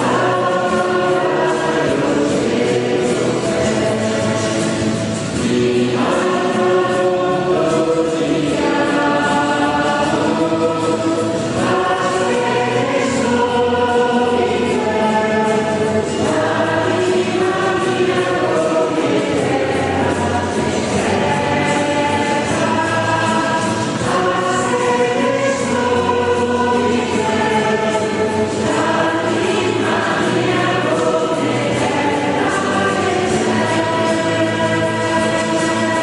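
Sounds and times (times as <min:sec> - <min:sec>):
choir singing a hymn: 0:00.0 - 0:36.0.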